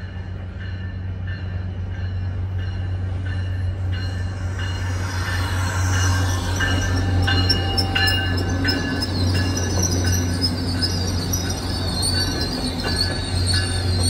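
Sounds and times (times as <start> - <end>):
train coaches rolling past: 0.0 - 14.0
wheels squealing: 4.0 - 14.0.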